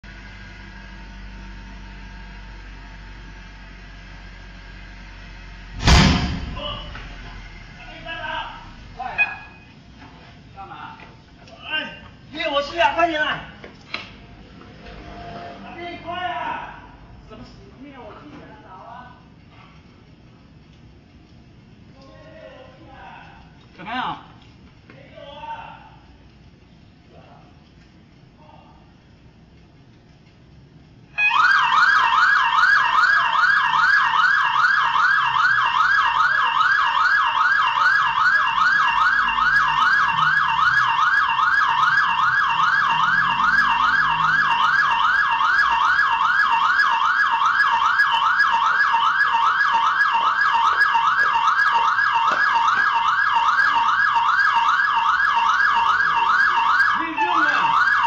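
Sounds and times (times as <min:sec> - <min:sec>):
electronic siren yelping: 0:07.8 - 0:09.7, 0:31.1 - 0:58.0.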